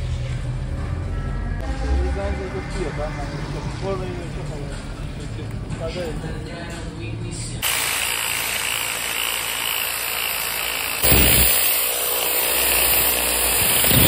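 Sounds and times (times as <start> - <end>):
angle grinder sanding wood: 7.6 - 14.0.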